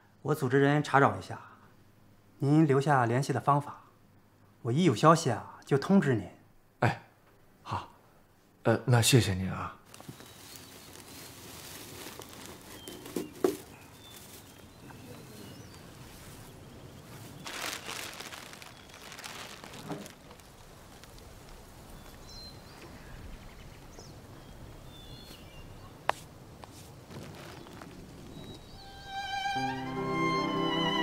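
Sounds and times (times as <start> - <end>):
dry grass rustling and crackling: 9.8 - 29.0
faint bird chirps: 10.0 - 11.7, 12.3 - 19.8.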